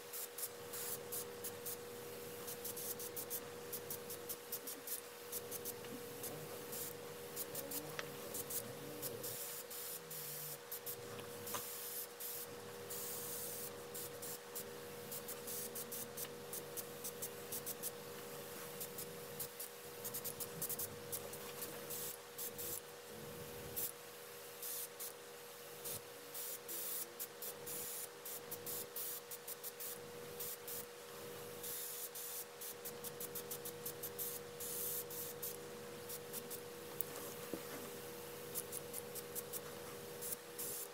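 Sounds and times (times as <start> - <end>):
airbrush hissing bursts: 0.0 - 22.8, 25.8 - 30.9, 31.6 - 36.7, 38.4 - 40.9
compressor humming: 0.0 - 23.8, 32.8 - 40.9.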